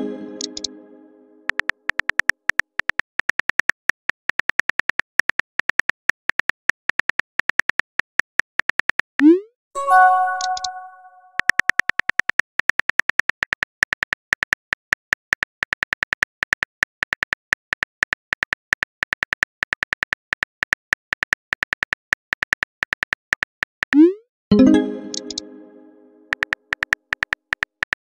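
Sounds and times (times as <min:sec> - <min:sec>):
brief chime: 0:09.8 - 0:11.3.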